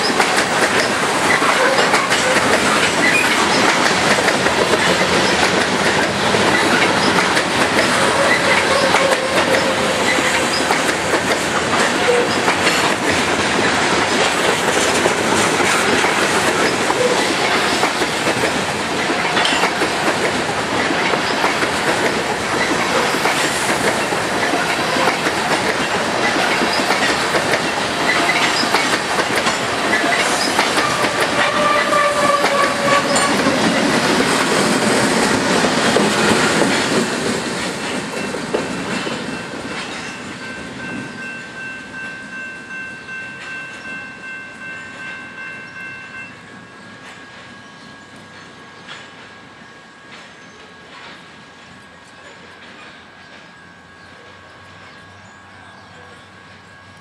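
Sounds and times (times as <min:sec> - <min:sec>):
train wheels squealing: 0:00.0 - 0:03.9, 0:04.8 - 0:11.2, 0:22.5 - 0:33.9, 0:38.2 - 0:57.0
freight train rolling past: 0:00.0 - 0:57.0
locomotive passing: 0:00.0 - 0:57.0.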